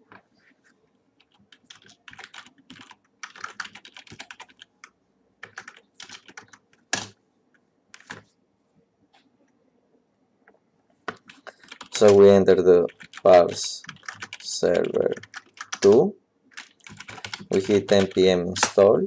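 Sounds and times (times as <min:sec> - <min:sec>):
computer keyboard typing: 0:01.2 - 0:07.2, 0:08.0 - 0:08.2, 0:11.1 - 0:18.8.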